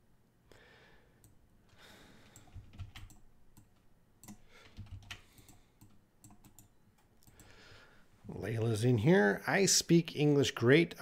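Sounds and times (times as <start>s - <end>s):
computer keyboard and mouse clicks: 2.2s - 7.5s.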